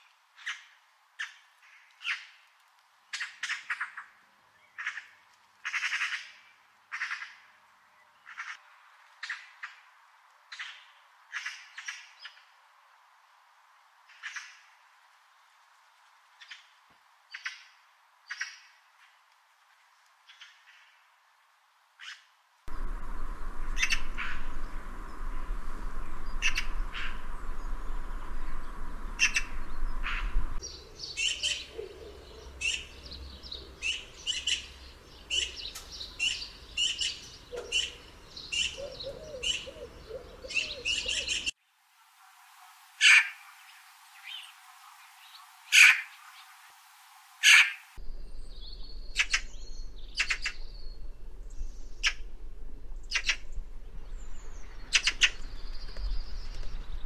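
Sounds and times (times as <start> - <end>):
magpie calling: 23.8 - 24.5, 29.2 - 32.9, 33.8 - 34.7, 36.2 - 41.5, 45.3 - 46.4, 47.4 - 47.9, 49.2 - 50.6, 53.1 - 53.4.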